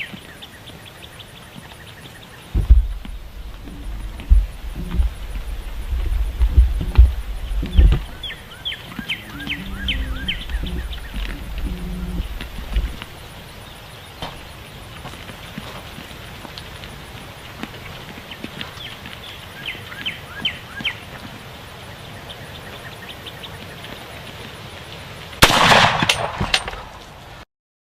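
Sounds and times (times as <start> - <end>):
bird chirps: 0.0 - 15.0
loud rifle shot: 25.4 - 27.0.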